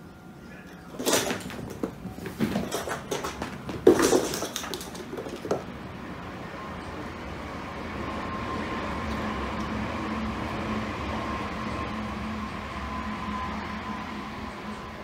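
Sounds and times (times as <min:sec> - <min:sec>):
cat paws pattering on wooden floor: 0:01.1 - 0:05.7.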